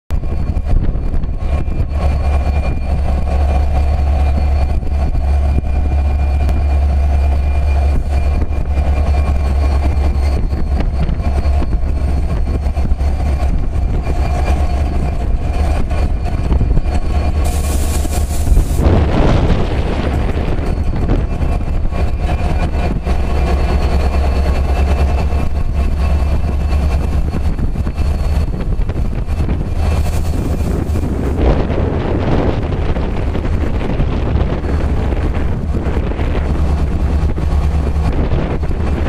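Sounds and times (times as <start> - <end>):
diesel locomotive engine idling: 0.6 - 39.0
loud hiss: 17.4 - 18.8.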